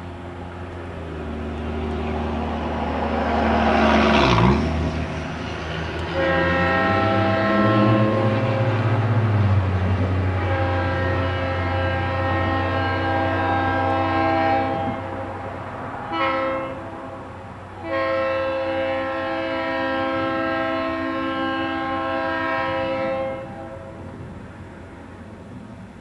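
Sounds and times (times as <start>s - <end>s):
low train rumble: 0.0s - 26.0s
train air horn blasts: 6.0s - 9.2s, 10.3s - 15.3s, 16.1s - 24.1s.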